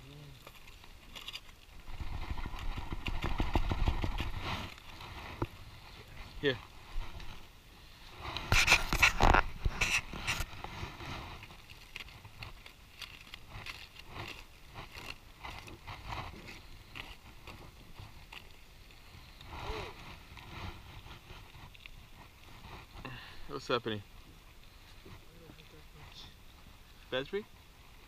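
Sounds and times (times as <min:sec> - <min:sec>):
small clicks and crackles: 0:00.0 - 0:07.5, 0:08.2 - 0:23.1
knife scraping foil: 0:08.4 - 0:18.6
foil crinkling: 0:08.4 - 0:22.9.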